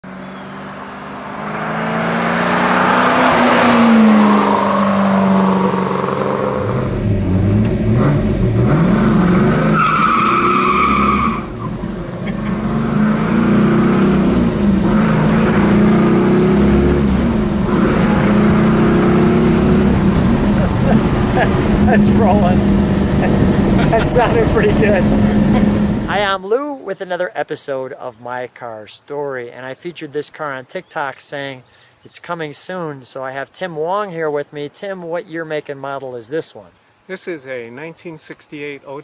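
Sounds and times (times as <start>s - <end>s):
car engine revving through gears: 0.0s - 26.2s
car engine passing by: 0.0s - 26.3s.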